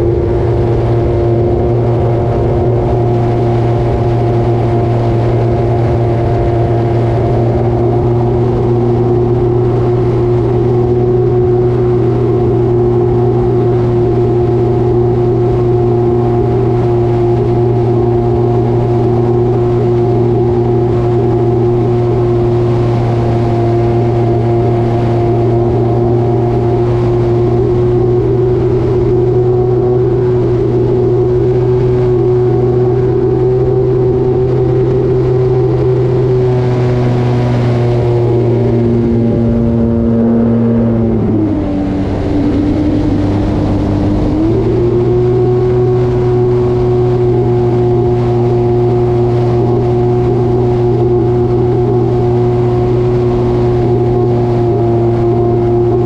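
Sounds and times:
air rushing past: 26.7 - 50.2.

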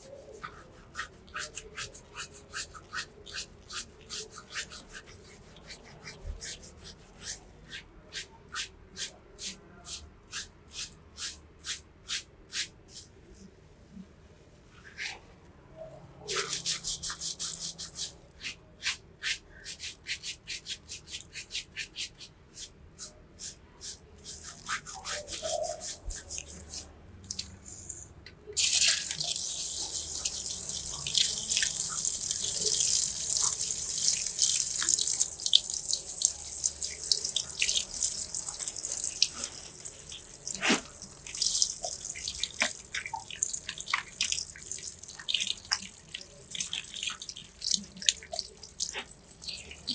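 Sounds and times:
fingers scrubbing lathered scalp: 0.0 - 13.1, 16.3 - 26.9, 28.6 - 49.9
shower water spraying: 24.2 - 26.8, 28.6 - 49.9.

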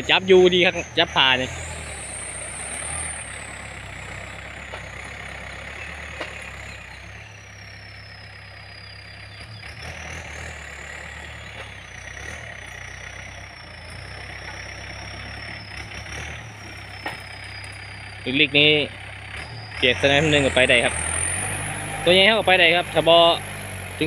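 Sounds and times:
tractor diesel engine under load: 0.0 - 24.0.

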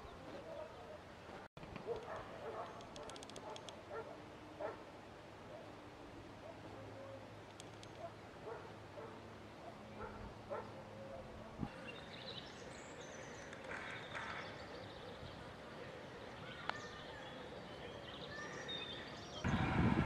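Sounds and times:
faint outdoor background noise: 0.0 - 20.0
light clicks: 1.6 - 3.8, 7.4 - 8.1.

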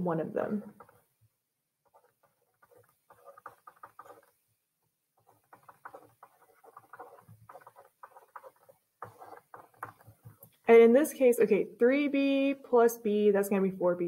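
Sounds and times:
stylus tapping on tablet screen: 1.8 - 4.4, 5.2 - 10.7.

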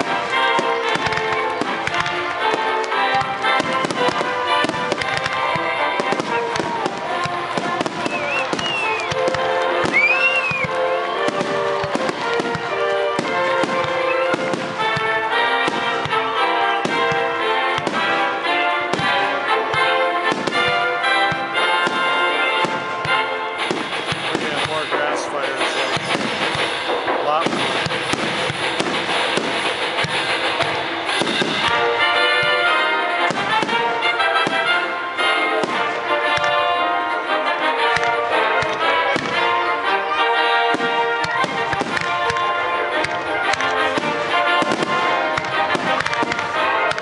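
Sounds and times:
fireworks bursting and crackling: 0.0 - 47.0
music playing: 0.0 - 47.0
high rising whistle: 8.1 - 9.2, 9.9 - 10.7.

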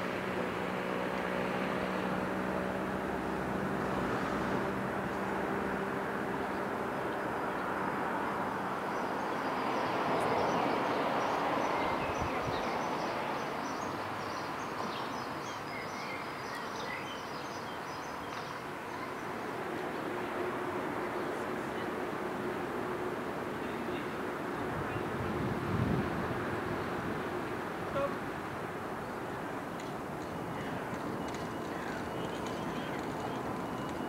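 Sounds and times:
distant traffic: 0.0 - 34.0
birds chirping: 29.0 - 34.0.

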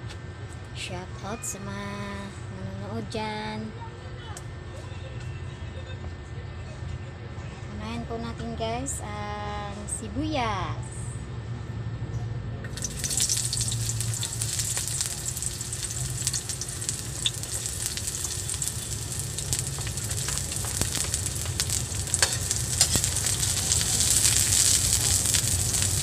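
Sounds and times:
onion sizzling in hot oil: 12.7 - 26.0
metal ladle stirring in wok: 17.2 - 25.9.

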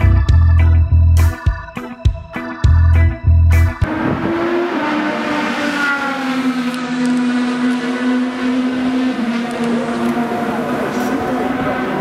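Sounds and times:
race car engine at high revs: 3.8 - 12.0.

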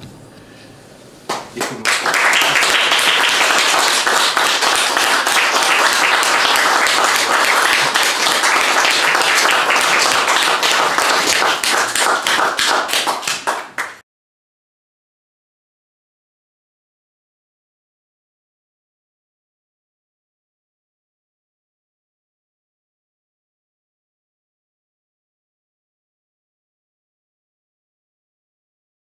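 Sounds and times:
audience applauding: 1.3 - 14.0.

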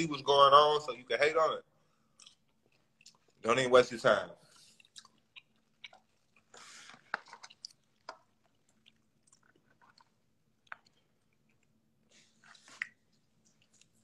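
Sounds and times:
person chewing food: 2.0 - 3.4, 4.4 - 14.0
wet mouth clicks and smacks: 4.6 - 11.8, 12.4 - 14.0.

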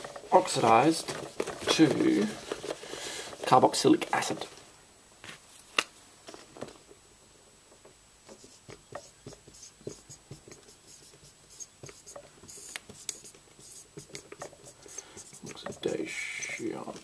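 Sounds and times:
marker writing on whiteboard: 8.3 - 17.0.

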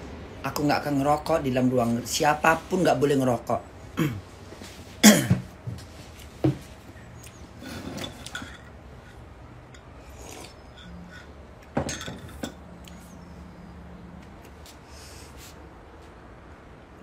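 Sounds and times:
soft sip: 10.0 - 11.3.

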